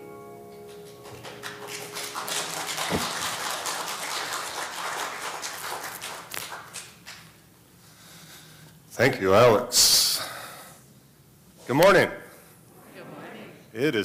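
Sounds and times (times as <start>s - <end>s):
congregation applauding: 0.5s - 7.3s.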